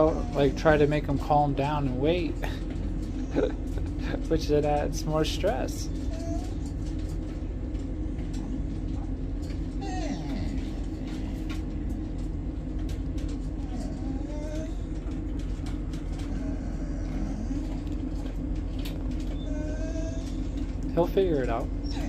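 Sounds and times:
dog whining: 0.0s - 1.4s, 3.0s - 4.0s, 5.8s - 7.2s, 8.4s - 11.9s, 13.3s - 22.0s
low hum: 0.0s - 22.0s.

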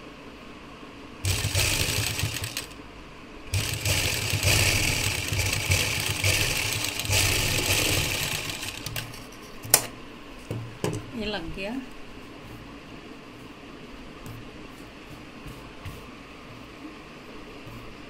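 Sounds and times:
sewing machine stitching: 1.2s - 2.8s, 3.5s - 9.2s.

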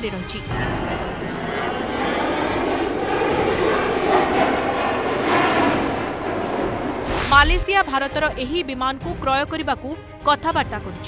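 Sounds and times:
jet engine roar: 0.5s - 9.1s.

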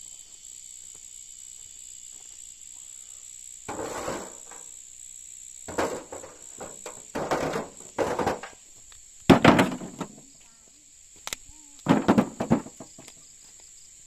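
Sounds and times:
insects chirring: 0.0s - 14.0s
stones clattering into metal wheelbarrow: 3.7s - 4.6s, 5.7s - 8.6s, 9.3s - 10.2s, 11.8s - 13.2s.

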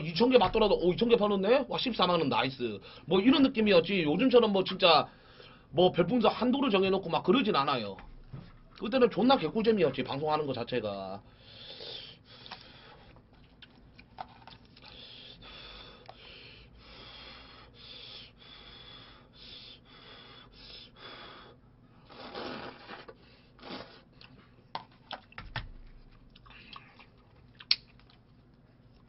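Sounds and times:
man slurping and chewing noodles: 22.0s - 25.3s.

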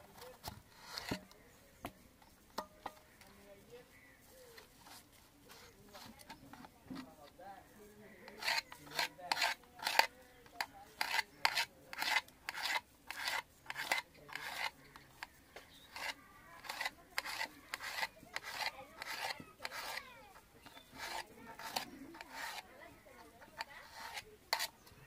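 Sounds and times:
knife slicing cucumber on metal plate: 0.1s - 1.4s, 8.3s - 25.0s.

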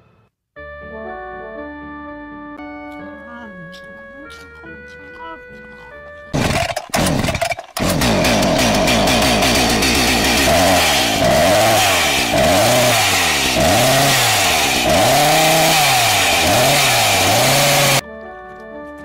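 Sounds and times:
faint music: 2.6s - 6.3s
chainsaw revving: 6.4s - 18.0s.

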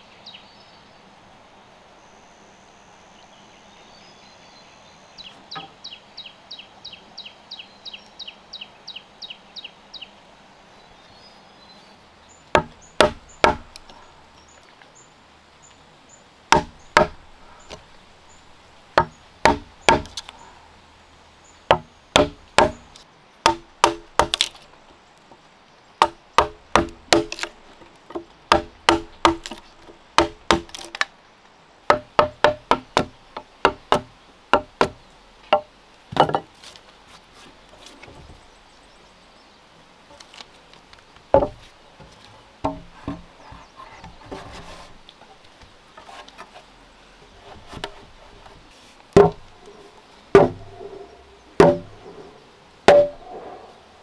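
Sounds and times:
hammer striking chisel into wood: 12.6s - 13.6s, 16.6s - 17.2s, 19.0s - 20.1s, 21.7s - 22.8s, 26.0s - 27.3s, 31.9s - 33.1s, 50.4s - 50.6s, 51.6s - 51.9s.

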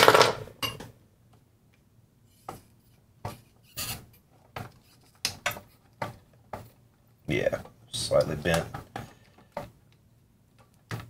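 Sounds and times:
tools scraping and tapping metal: 2.3s - 6.8s.

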